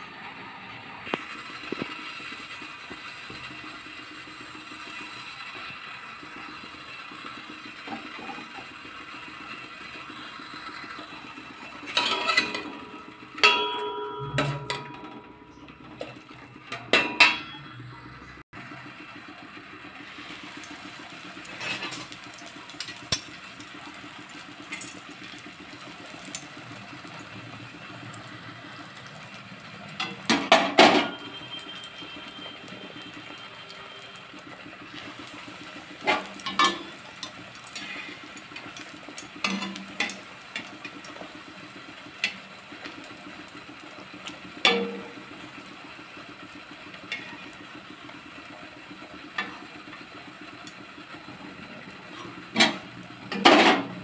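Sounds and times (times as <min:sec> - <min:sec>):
bread frying in hot oil: 0:00.0 - 0:54.0
metal utensil clinking against pan: 0:11.9 - 0:12.7, 0:13.4 - 0:15.2.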